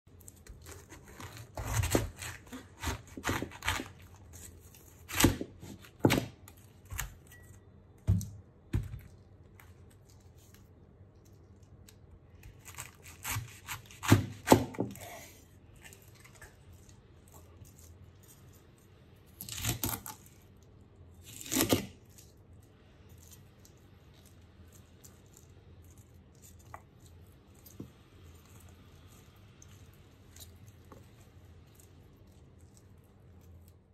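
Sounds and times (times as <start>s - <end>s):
knife crunching through cabbage: 0.1s - 7.4s, 12.4s - 20.6s, 21.2s - 22.4s.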